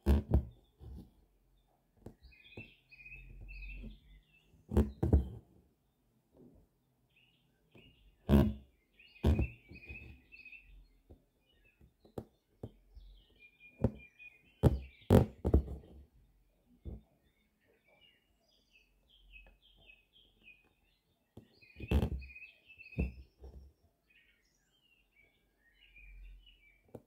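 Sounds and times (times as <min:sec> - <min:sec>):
needle and thread rasping through fabric: 0:00.0 - 0:01.2, 0:03.4 - 0:05.6, 0:08.3 - 0:08.6, 0:09.2 - 0:10.3, 0:14.6 - 0:16.1, 0:21.4 - 0:22.3, 0:23.0 - 0:23.7
small birds chirping: 0:00.3 - 0:06.0, 0:07.0 - 0:27.0.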